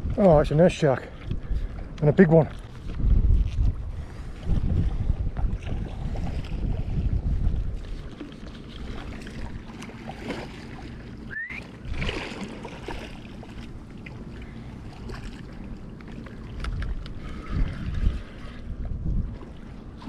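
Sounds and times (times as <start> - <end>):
wind buffeting microphone: 0.0 - 8.2, 16.4 - 20.0
shark thrashing water splashing: 8.2 - 11.1, 11.8 - 13.8.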